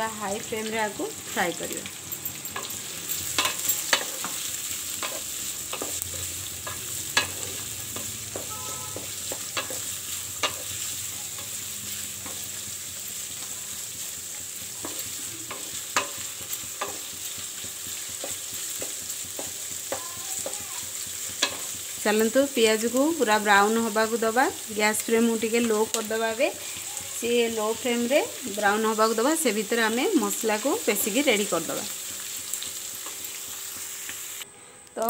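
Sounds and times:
onions sizzling in oil: 0.0 - 34.5.

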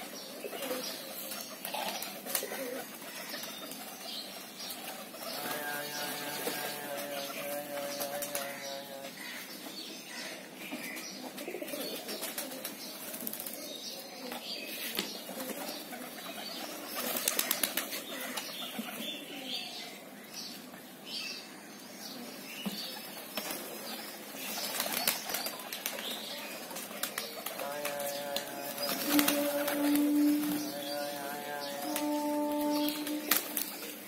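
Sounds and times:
pigeons flapping wings: 0.6 - 8.5, 15.3 - 18.5, 24.5 - 30.8, 31.8 - 34.0.

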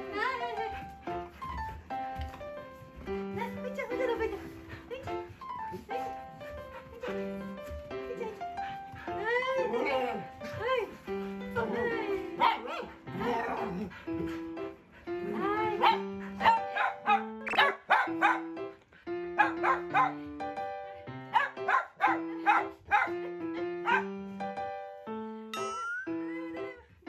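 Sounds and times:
background music: 0.0 - 27.0
dogs barking and yipping: 11.5 - 14.0, 15.5 - 18.6, 19.4 - 20.3, 21.3 - 24.1.

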